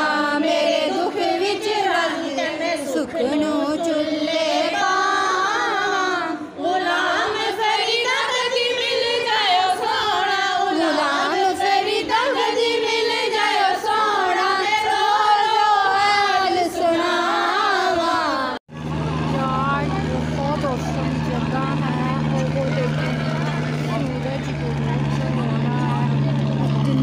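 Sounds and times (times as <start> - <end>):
voices singing a chant: 0.0 - 18.6.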